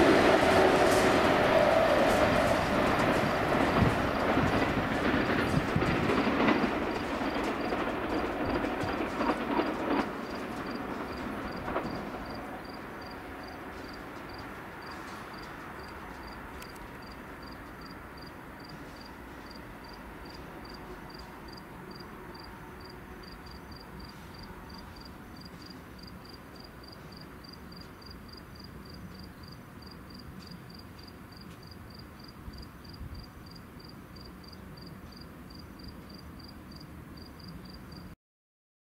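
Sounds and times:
train rumbling: 0.0 - 38.1.

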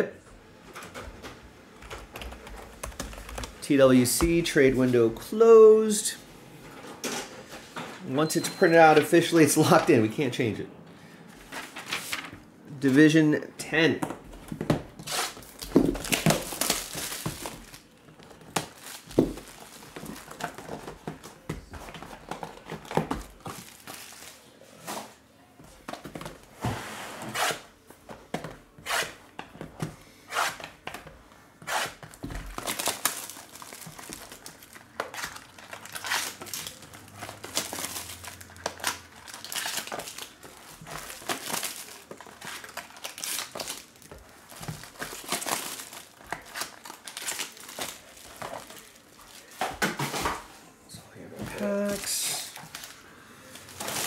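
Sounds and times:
plastic shrink wrap crinkling: 15.0 - 24.9, 32.0 - 50.4, 51.6 - 54.0.

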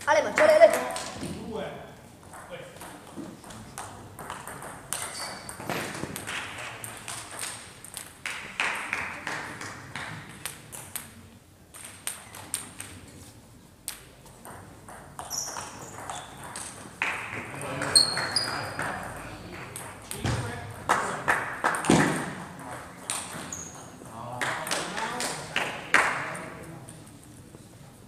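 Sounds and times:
table tennis ball clicking: 3.7 - 8.4.

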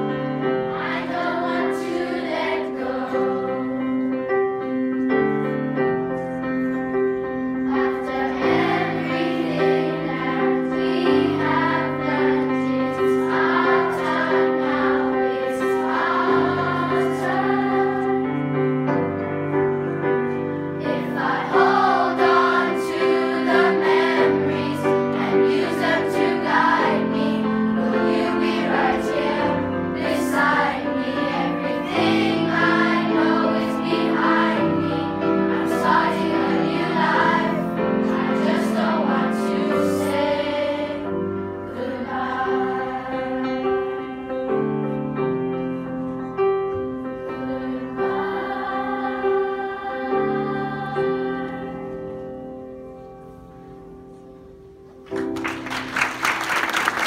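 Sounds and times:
children's choir singing: 0.0 - 57.0.

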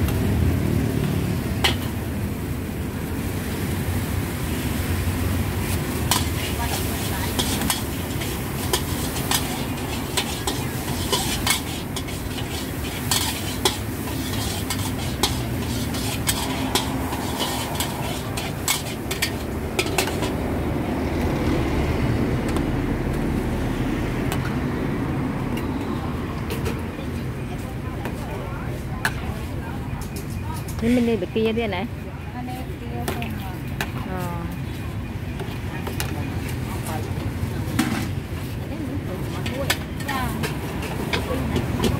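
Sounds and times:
metal ladle scraping a wok: 5.6 - 20.4
steady low rumble: 15.2 - 25.5.

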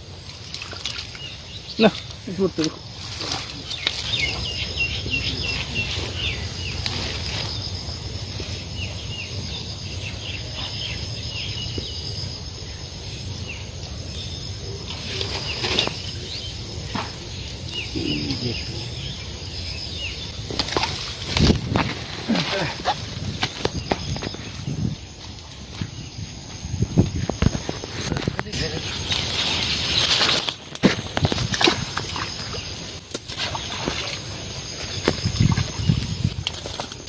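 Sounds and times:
small birds chirping: 0.2 - 37.0
net rustling in grass: 1.8 - 7.9, 14.9 - 17.4, 20.4 - 37.0.

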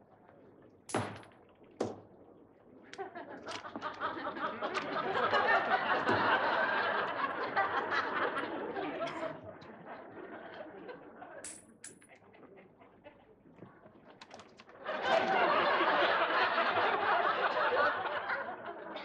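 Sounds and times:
sharp knocks: 0.9 - 2.2
studio audience laughing: 2.9 - 11.4, 14.7 - 19.0.

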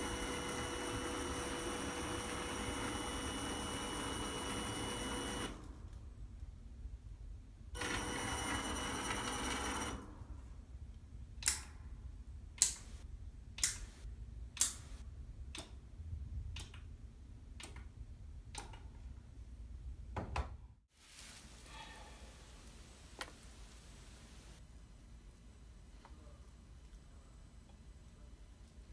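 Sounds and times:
sharp clicks: 11.4 - 11.8.

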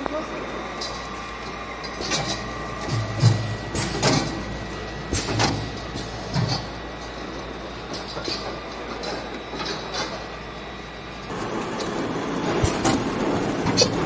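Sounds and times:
machinery hum: 0.0 - 14.0
machinery clunks and knocks: 2.1 - 4.5.

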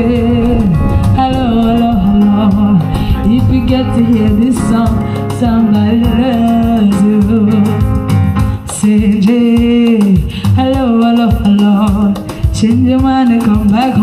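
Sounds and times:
electronic keyboard with beat: 0.0 - 14.0
person singing: 0.0 - 14.0.

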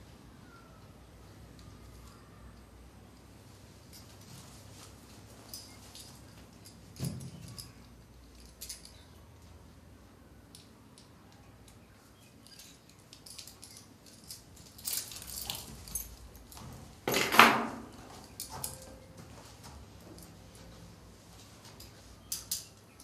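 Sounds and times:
metal handcuffs clinking: 5.4 - 9.5, 10.5 - 19.0, 21.8 - 23.0.

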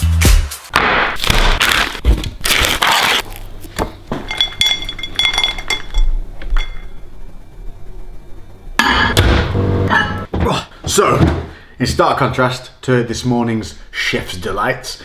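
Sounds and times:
kitchenware clinking: 3.8 - 7.0.

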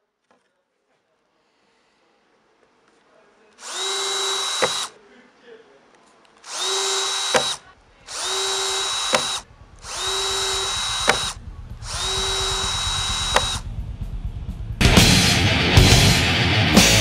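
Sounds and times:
drill stopping click: 3.6 - 4.9, 6.4 - 13.6
power drill whining: 3.6 - 5.0, 6.4 - 13.6.

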